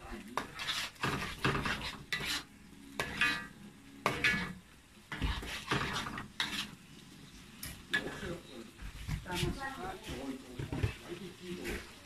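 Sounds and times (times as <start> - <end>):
low frying sizzle: 0.0 - 12.0
spatula scraping a metal wok: 0.3 - 6.8, 7.9 - 8.4.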